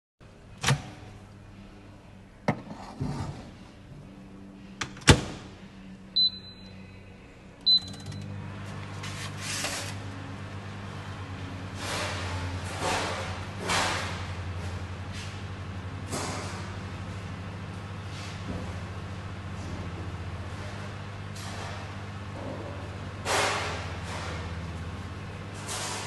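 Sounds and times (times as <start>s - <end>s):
microwave door shutting: 0.6s - 1.0s
microwave oven humming: 3.6s - 26.0s
short keypad beeps: 6.2s - 6.8s, 7.6s - 8.2s.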